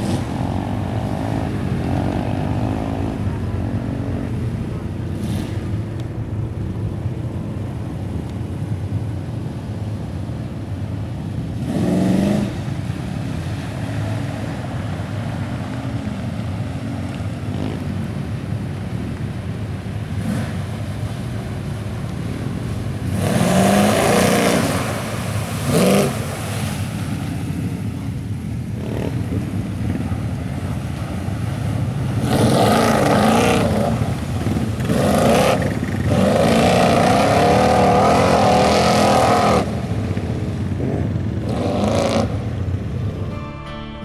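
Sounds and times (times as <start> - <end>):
truck engine revving: 0.0 - 6.3, 22.9 - 26.8, 32.0 - 39.8, 40.8 - 44.0
tires churning through mud and water: 0.0 - 43.4.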